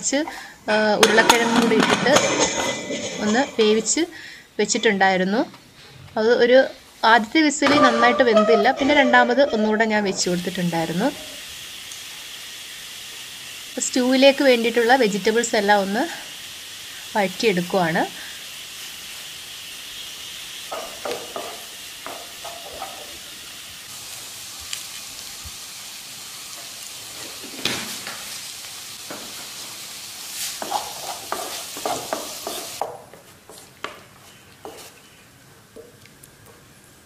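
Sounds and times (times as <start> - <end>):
vegetables sizzling in oil: 0.0 - 5.3, 6.2 - 33.2
wooden spatula scraping pan: 7.6 - 11.2, 30.4 - 32.8.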